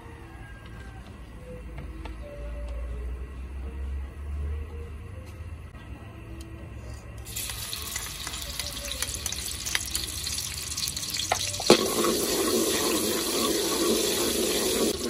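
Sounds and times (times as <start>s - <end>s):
garlic sizzling in hot oil: 7.2s - 15.0s.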